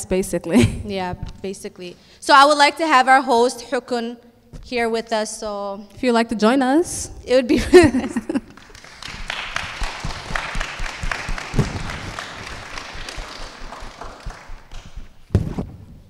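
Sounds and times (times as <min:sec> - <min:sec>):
audience applauding: 0:08.5 - 0:15.2
thump: 0:15.3 - 0:15.9.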